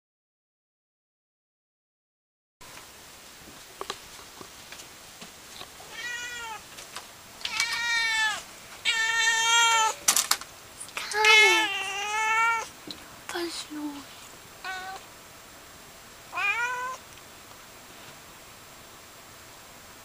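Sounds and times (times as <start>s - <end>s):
cat meowing loudly: 5.8s - 6.7s, 7.4s - 10.0s, 11.2s - 12.7s, 14.6s - 15.0s, 16.3s - 17.0s.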